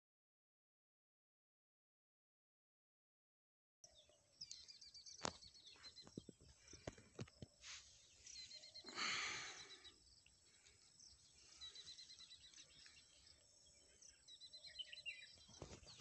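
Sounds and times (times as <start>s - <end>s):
small bird chirping: 3.9s - 16.0s.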